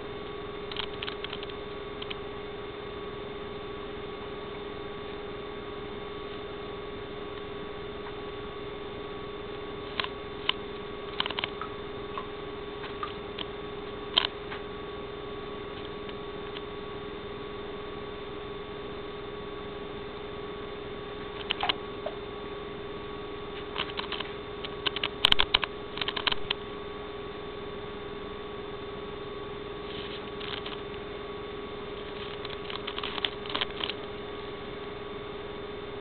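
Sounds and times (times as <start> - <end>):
steady hum: 0.0 - 36.0.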